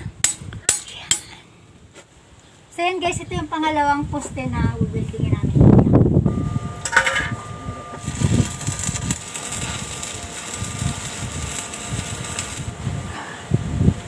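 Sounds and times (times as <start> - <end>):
arc welding crackling: 6.3 - 14.0.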